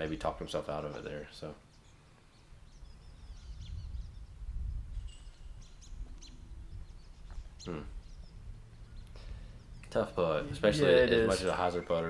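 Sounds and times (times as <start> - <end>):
small birds chirping: 0.0 - 12.0
wind rumble on microphone: 2.6 - 10.7.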